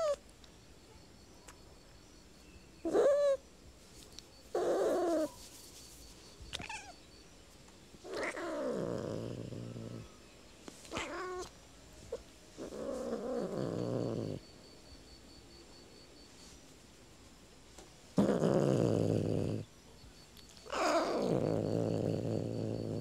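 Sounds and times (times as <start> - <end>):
cat meowing: 6.5 - 7.0, 8.1 - 8.9, 10.9 - 11.5.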